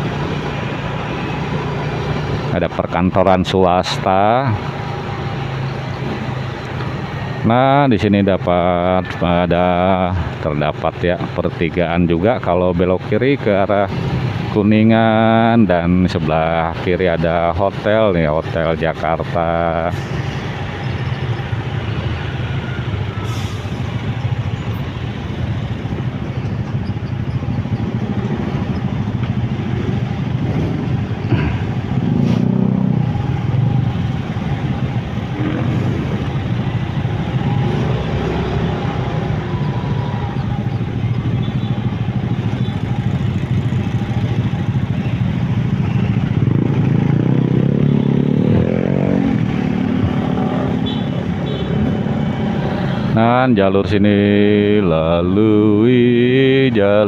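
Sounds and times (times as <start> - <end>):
motorcycle and car traffic: 0.0 - 57.0
road noise: 0.0 - 57.0
vehicle accelerating: 18.8 - 57.0.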